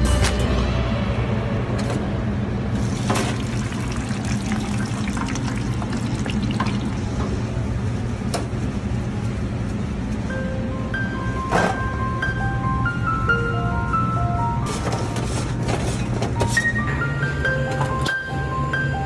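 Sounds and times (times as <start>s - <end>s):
fries sizzling in hot oil: 2.8s - 7.2s.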